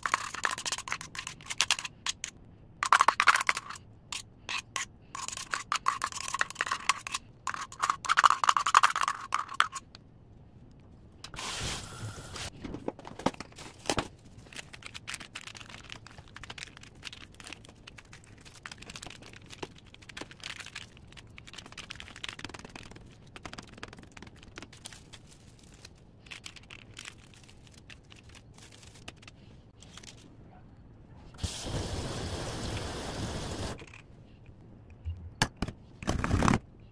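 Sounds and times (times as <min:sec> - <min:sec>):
cling film crinkling: 0:13.4 - 0:30.3.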